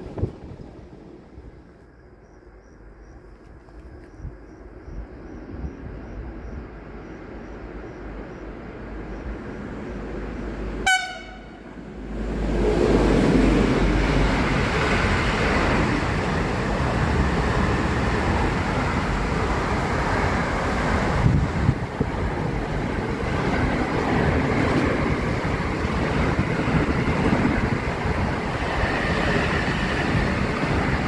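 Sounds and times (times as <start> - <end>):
train wheels rumbling on rail: 0.0 - 1.9, 2.6 - 31.0
train horn toot: 10.8 - 11.7.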